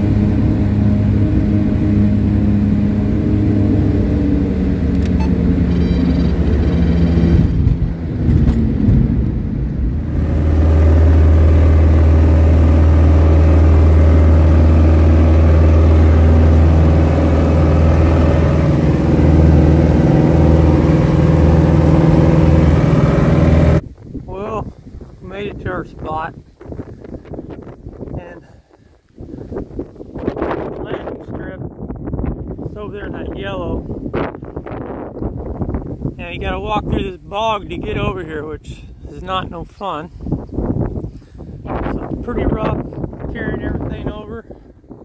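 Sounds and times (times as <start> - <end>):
light plane engine droning: 0.0 - 23.9.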